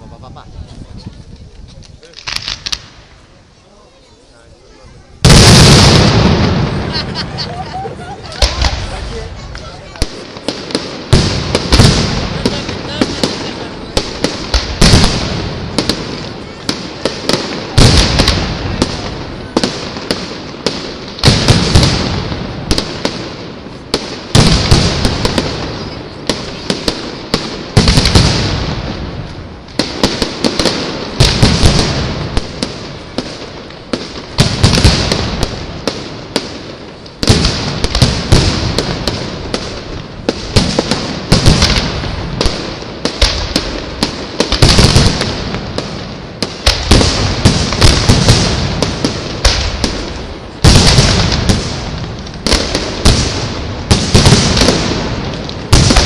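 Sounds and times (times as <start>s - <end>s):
fireworks booming: 0.0s - 56.0s
fireworks crackling and popping: 0.0s - 56.0s.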